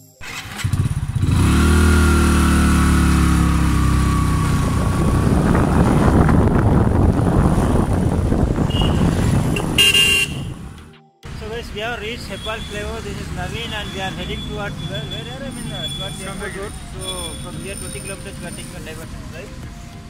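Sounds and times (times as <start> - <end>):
motorcycle engine running: 0.2 - 10.7
wind and road noise: 0.2 - 20.0
short horn toot: 8.7 - 10.6.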